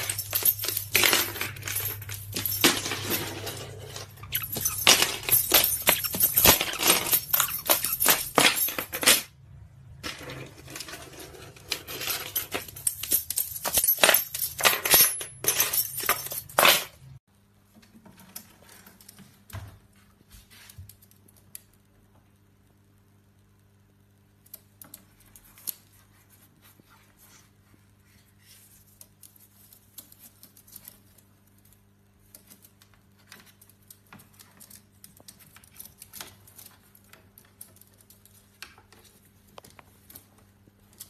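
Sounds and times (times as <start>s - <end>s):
small hard objects clinking: 0.0s - 9.3s.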